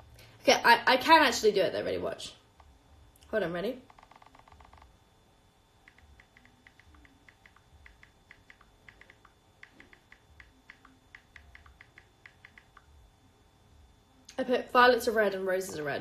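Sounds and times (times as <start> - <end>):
faint phone keyboard clicks: 5.8 - 12.9.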